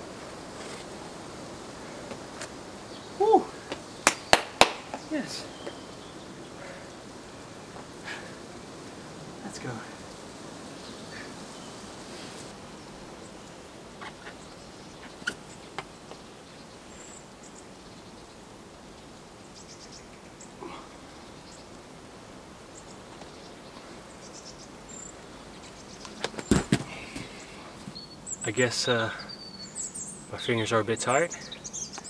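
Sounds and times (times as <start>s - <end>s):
soft steady hiss: 0.0s - 32.0s
high bird chirps: 27.2s - 30.4s.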